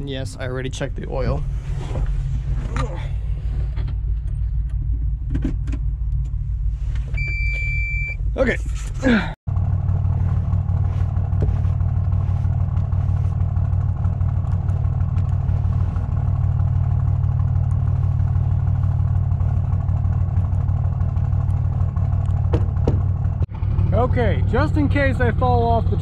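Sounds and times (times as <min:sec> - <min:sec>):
diesel engine idling: 0:08.2 - 0:26.0.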